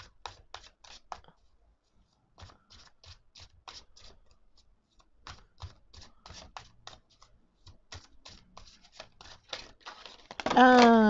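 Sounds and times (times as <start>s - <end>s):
cards shuffling: 5.0s - 11.0s.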